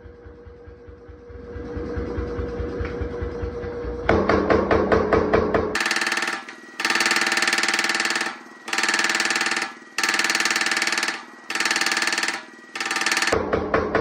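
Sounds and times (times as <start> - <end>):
power hammer rapid blows: 5.7 - 14.0.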